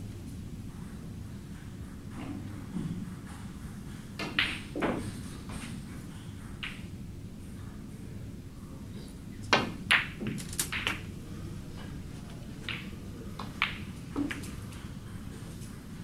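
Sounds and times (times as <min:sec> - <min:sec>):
ball dropping into pocket: 0:09.6 - 0:11.1, 0:12.7 - 0:14.5
cue tip clicking on ball: 0:09.6 - 0:11.1
snooker balls cracking together: 0:09.6 - 0:11.2, 0:12.3 - 0:14.7.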